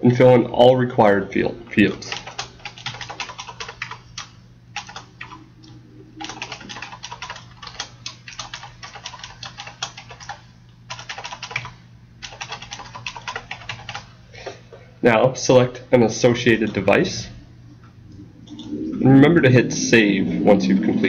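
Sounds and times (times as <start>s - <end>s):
faint low hum: 0.0s - 21.0s
computer keyboard typing: 1.9s - 14.1s.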